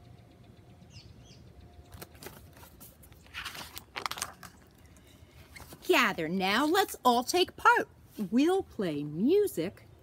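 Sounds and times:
bird chirping: 0.0s - 2.5s
paper pages rustling: 1.9s - 4.7s.

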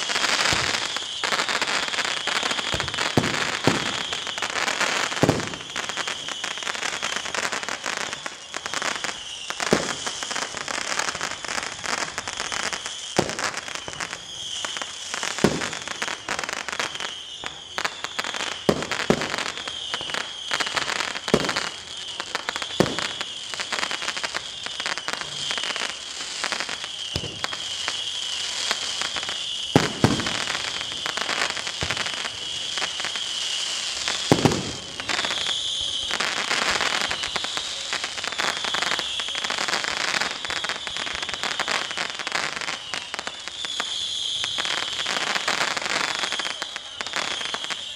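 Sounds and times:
fireworks crackling and banging: 0.0s - 47.9s.

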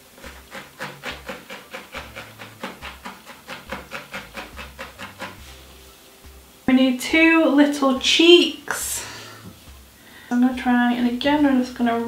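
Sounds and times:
felting needle poking wool: 0.2s - 5.5s.

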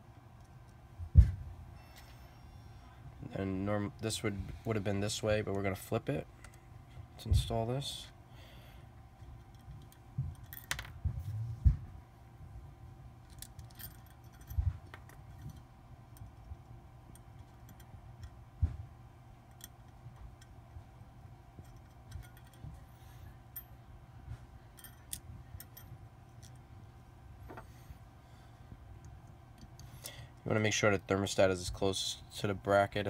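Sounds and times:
small metal parts clicking: 13.2s - 15.6s, 21.6s - 22.7s, 24.8s - 26.6s.

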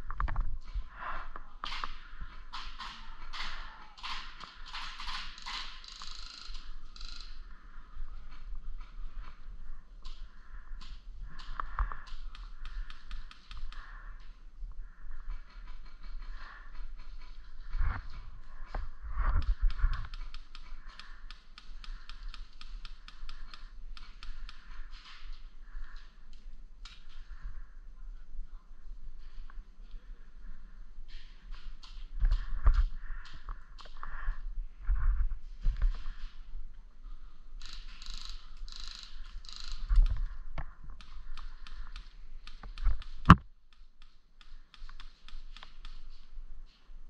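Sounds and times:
small gear clicks: 1.6s - 7.4s, 10.0s - 14.3s, 19.4s - 27.2s, 37.6s - 40.4s, 41.0s - 46.8s
airsoft gunfire rapid clicks: 2.5s - 5.8s.

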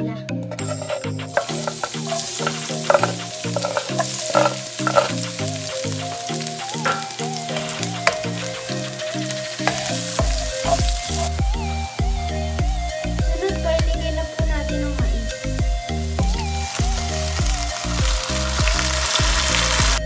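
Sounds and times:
light background music: 0.0s - 20.0s
spatula knocking and scraping pan: 0.5s - 11.3s
onion sizzling in hot oil: 0.7s - 14.4s, 15.1s - 20.0s.

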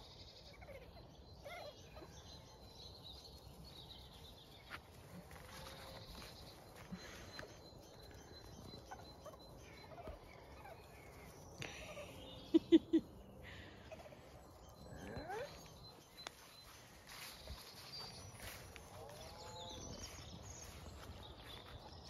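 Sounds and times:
faint bird chirps: 4.4s - 22.0s.

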